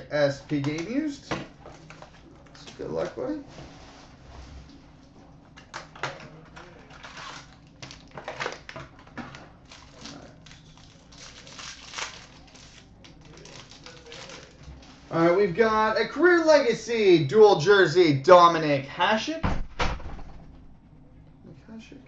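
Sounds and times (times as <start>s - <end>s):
foil wrapper crinkling: 6.9s - 8.8s, 9.6s - 15.0s.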